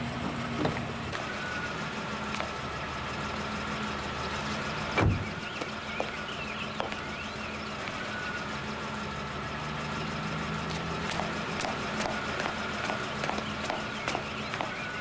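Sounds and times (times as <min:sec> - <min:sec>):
car engine idling: 0:00.0 - 0:15.0
car door slam: 0:05.0 - 0:05.4.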